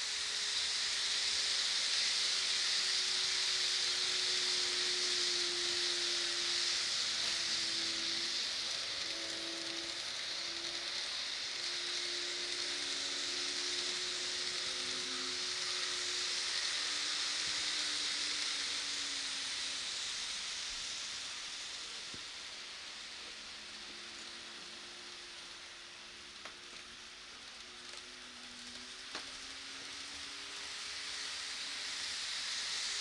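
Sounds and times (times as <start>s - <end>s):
model train wheels rushing on rails: 0.0s - 33.0s
faint motor hum: 4.2s - 20.1s.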